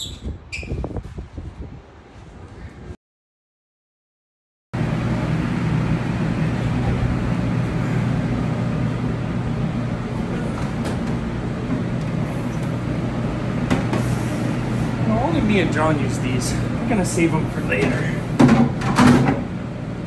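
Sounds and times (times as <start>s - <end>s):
rushing air: 4.8s - 18.4s
kitchen machinery hum: 4.8s - 20.0s.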